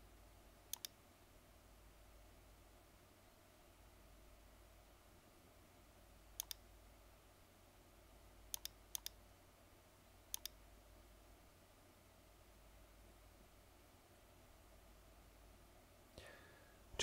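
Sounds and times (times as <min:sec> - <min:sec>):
faint steady hum: 0:00.0 - 0:17.0
mouse button clicking: 0:00.7 - 0:01.0, 0:06.4 - 0:06.6, 0:08.5 - 0:09.2, 0:10.3 - 0:10.6.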